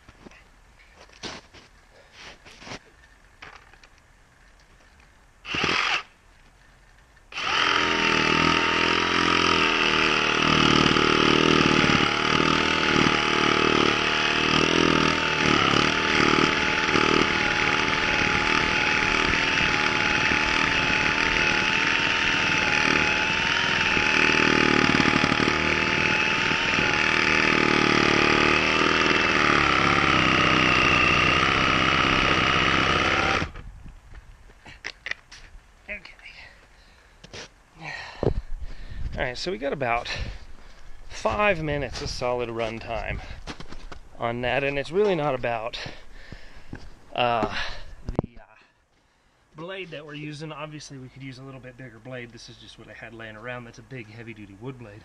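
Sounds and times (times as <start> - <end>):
reciprocating saw cutting wood: 5.4 - 6.2, 7.3 - 33.6.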